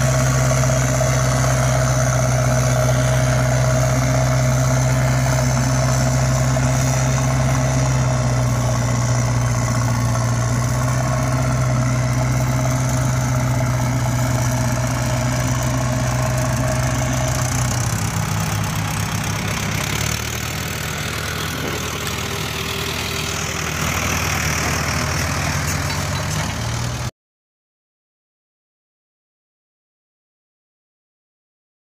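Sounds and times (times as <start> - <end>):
heavy vehicle engine idling: 0.0 - 27.1.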